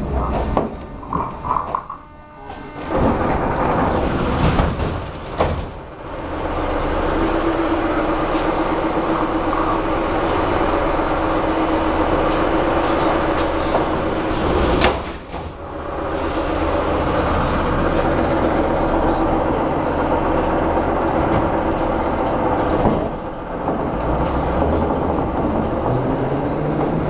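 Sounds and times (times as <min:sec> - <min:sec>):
doors shutting bang: 0:00.0 - 0:06.2, 0:13.3 - 0:16.0
sliding doors opening clunk: 0:00.0 - 0:27.0
train car humming: 0:00.0 - 0:27.0
train coming to a stop: 0:02.3 - 0:27.0.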